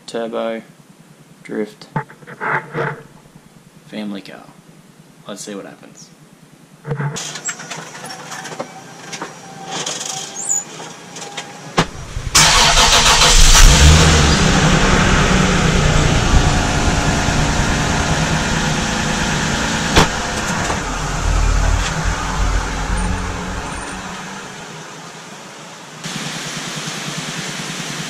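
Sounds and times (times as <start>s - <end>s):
car engine starting and idling: 7.2s - 28.0s.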